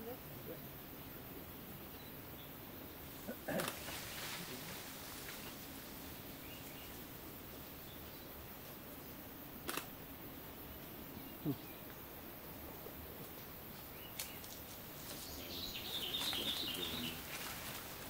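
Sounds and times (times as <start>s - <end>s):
rustling of leaves and branches: 0.0s - 18.0s
sharp clicks: 9.6s - 9.9s.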